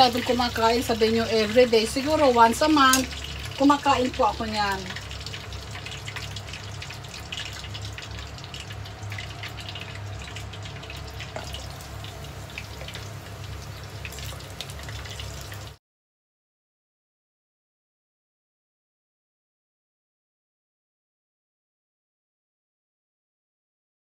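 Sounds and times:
hot oil sizzling and crackling: 0:00.0 - 0:15.8.

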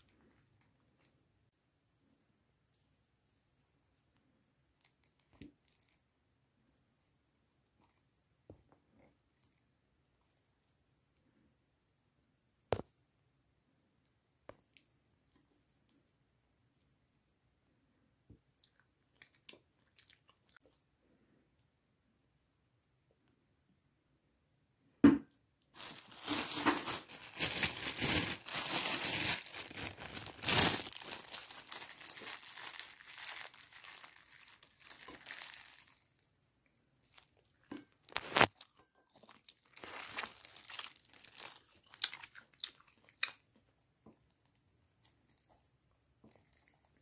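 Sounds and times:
plastic glove crinkling: 0:25.7 - 0:36.3, 0:37.0 - 0:43.1.

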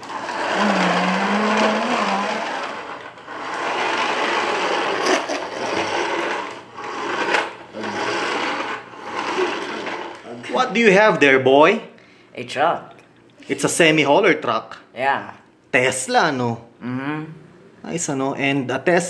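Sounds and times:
toy trucks rolling and scraping: 0:00.0 - 0:10.4.

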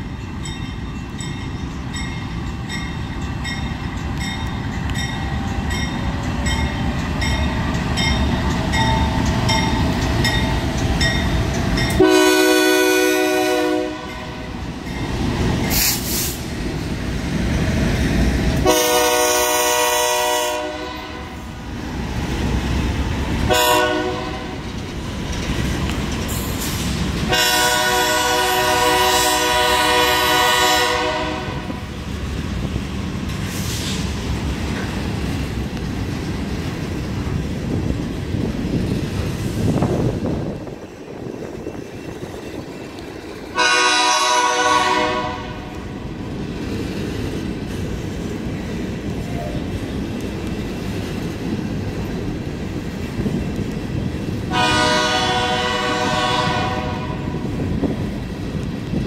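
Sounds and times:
train wheels clicking over rails: 0:00.0 - 0:12.8, 0:14.2 - 0:19.0, 0:21.4 - 0:30.7, 0:31.6 - 0:43.6
freight train rumbling past: 0:00.0 - 0:59.0
locomotive air horn blasts: 0:12.0 - 0:14.5, 0:18.6 - 0:21.4, 0:23.5 - 0:24.6, 0:27.3 - 0:31.8, 0:43.5 - 0:45.7, 0:54.5 - 0:57.4.

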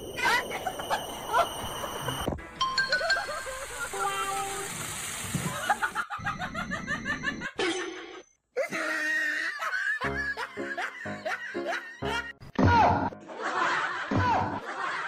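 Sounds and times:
people laughing: 0:00.3 - 0:02.2, 0:02.9 - 0:04.4, 0:05.5 - 0:08.0, 0:08.6 - 0:12.3, 0:13.0 - 0:15.0
background music: 0:02.3 - 0:04.8, 0:09.5 - 0:14.7.

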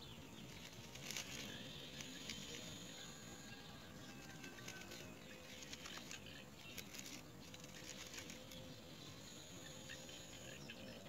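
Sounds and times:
bird rustling in twig nest: 0:00.4 - 0:02.9, 0:04.1 - 0:08.7.

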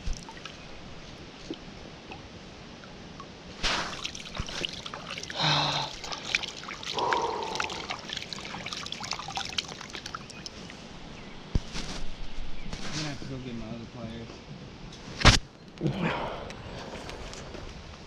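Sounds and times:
water trickling and splashing: 0:00.0 - 0:11.6.

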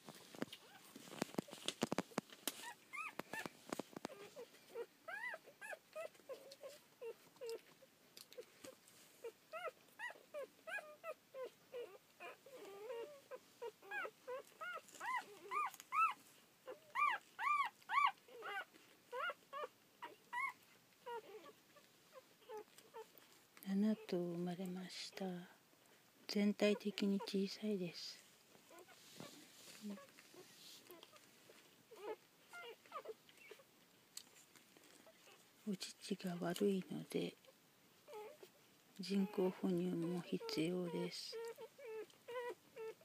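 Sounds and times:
puppies squeaking and whimpering: 0:00.1 - 0:07.7, 0:09.2 - 0:23.2, 0:28.6 - 0:31.2, 0:31.9 - 0:33.7, 0:38.0 - 0:43.0.

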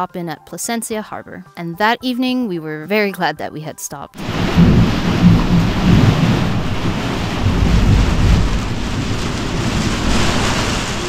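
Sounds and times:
pouring rain: 0:04.2 - 0:11.0
rolling thunder: 0:04.2 - 0:11.0.

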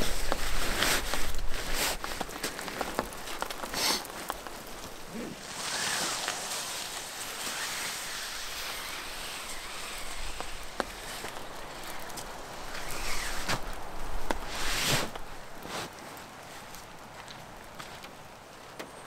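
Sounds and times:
nylon bag rustling: 0:00.0 - 0:15.9
steady rain hiss: 0:00.0 - 0:19.0.

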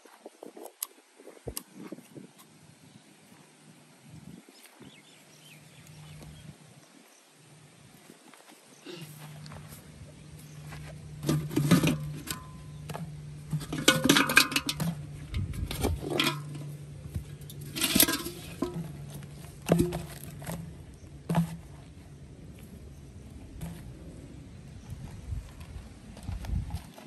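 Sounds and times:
low steady hum: 0:08.7 - 0:27.0
bricks and bottles knocking on pot: 0:11.2 - 0:16.7, 0:19.6 - 0:20.6.

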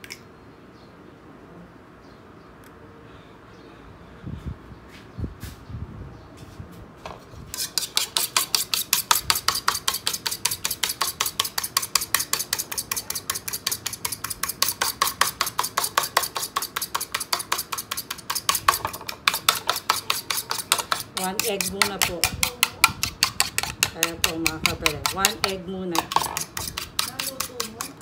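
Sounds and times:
utensil beating egg in bowl: 0:07.5 - 0:28.0.

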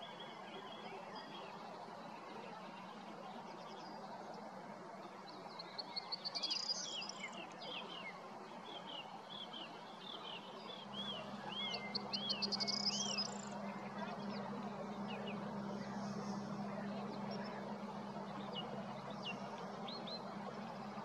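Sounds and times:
steady low hum: 0:09.8 - 0:21.0
bird chirping: 0:10.4 - 0:21.0.

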